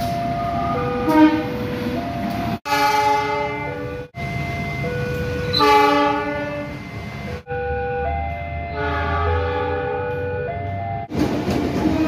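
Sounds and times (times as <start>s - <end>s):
diesel locomotive horn blasts: 1.0s - 1.6s, 2.6s - 4.1s, 5.4s - 7.4s, 8.7s - 10.4s.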